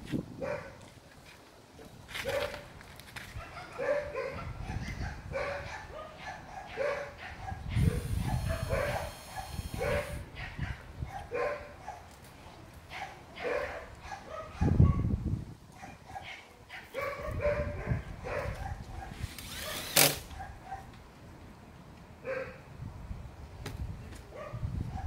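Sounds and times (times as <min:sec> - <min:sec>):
dog barking: 0:00.4 - 0:00.8, 0:02.2 - 0:02.6, 0:03.4 - 0:12.1, 0:12.9 - 0:15.1, 0:15.8 - 0:20.9, 0:22.2 - 0:22.6, 0:24.3 - 0:25.0.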